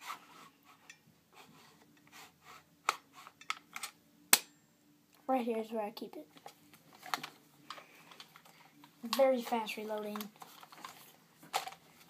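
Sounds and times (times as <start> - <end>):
plastic rifle handling noise: 2.8 - 4.5, 6.4 - 12.0.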